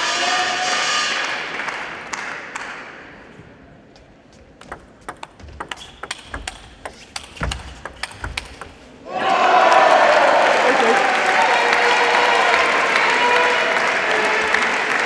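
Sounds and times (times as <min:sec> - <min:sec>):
table tennis ball clicking: 0:04.6 - 0:08.8
crowd applause: 0:09.1 - 0:15.0.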